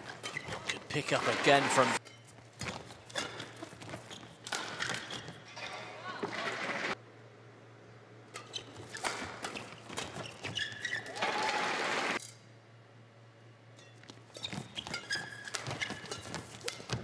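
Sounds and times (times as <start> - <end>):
shoes squeaking on court: 0.0 - 6.9, 8.3 - 11.2, 13.8 - 17.0.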